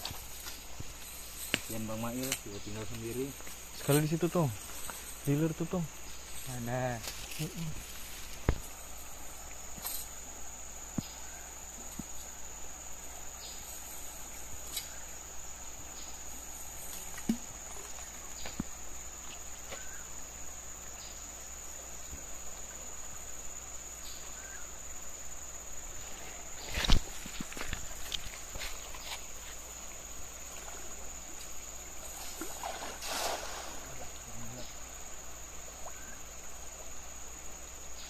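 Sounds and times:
high-pitched insect drone: 0.0 - 38.0
shallow river flowing: 26.0 - 37.8.

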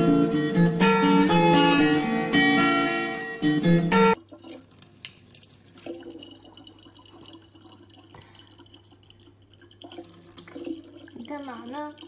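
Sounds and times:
faucet water trickling into bottle: 4.2 - 12.0.

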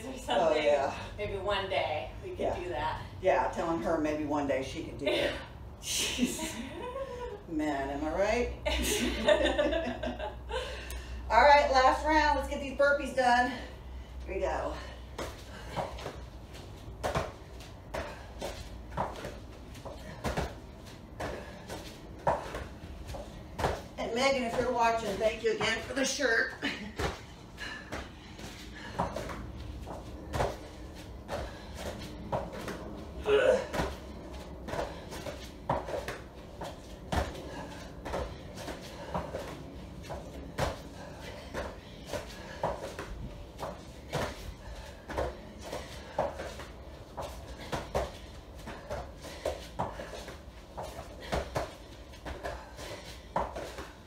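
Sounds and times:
thuds landing on exercise mats: 15.1 - 54.0.

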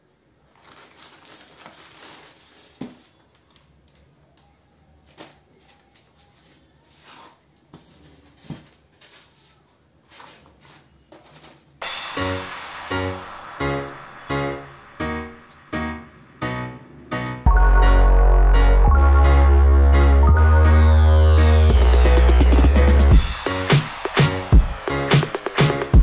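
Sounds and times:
plastic mailer crinkling: 0.4 - 3.6
cardboard wrapper pulled apart: 0.5 - 3.2.

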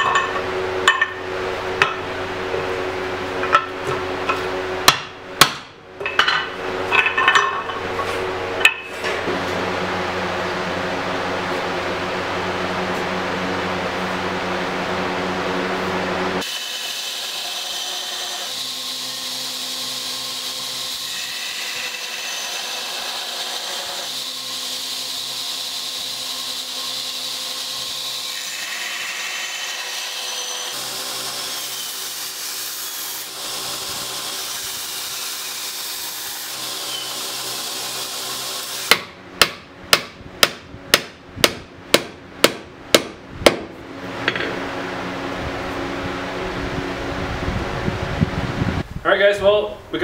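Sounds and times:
sharp knocks on anvil: 4.8 - 7.7, 38.9 - 44.6
belt grinder grinding: 16.4 - 38.9.

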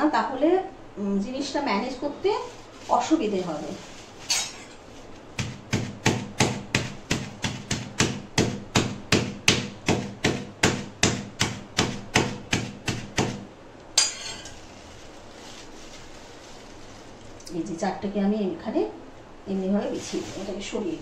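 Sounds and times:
plastic sheet crinkling: 2.2 - 5.5, 14.5 - 17.5, 19.8 - 21.0.

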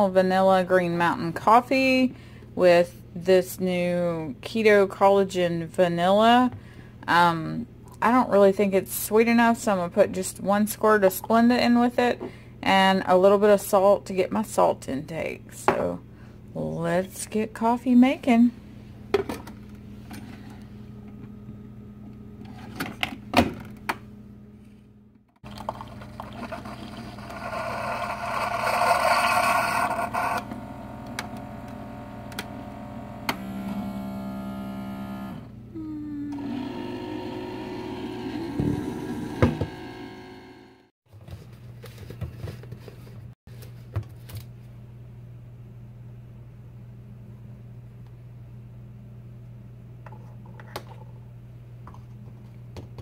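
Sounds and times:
coffee maker humming: 25.4 - 40.9
coffee hissing and gurgling: 25.5 - 29.9.

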